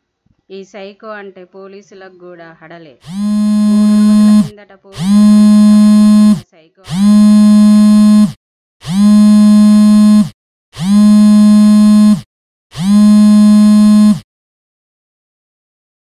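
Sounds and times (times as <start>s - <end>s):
mobile phone buzzing: 3.0s - 14.2s.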